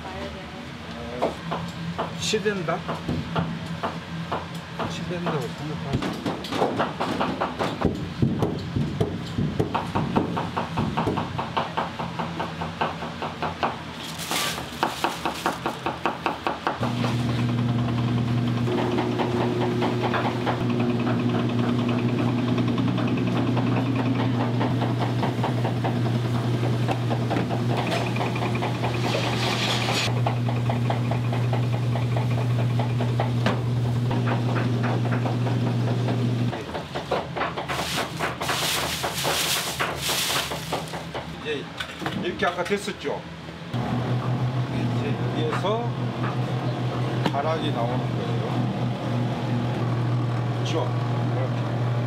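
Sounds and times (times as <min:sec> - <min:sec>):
electric motor humming: 0:16.8 - 0:36.5
machine knocking: 0:18.7 - 0:29.1, 0:29.8 - 0:33.4, 0:34.1 - 0:41.4.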